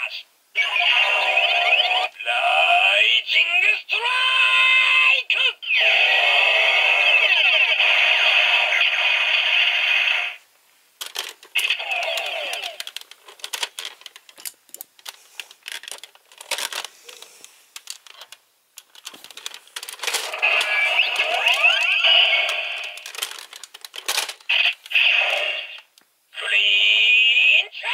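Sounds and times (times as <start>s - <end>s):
electronic toy gun sound effects: 11.6s - 12.8s, 20.3s - 23.0s, 24.5s - 25.8s.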